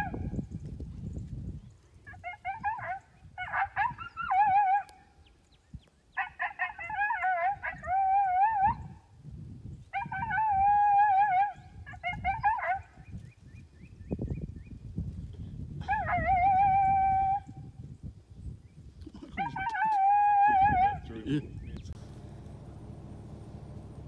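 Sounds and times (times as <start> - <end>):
canines howling and yipping: 2.1 - 5.0, 6.2 - 9.0, 9.9 - 12.9, 15.8 - 17.5, 19.3 - 21.1.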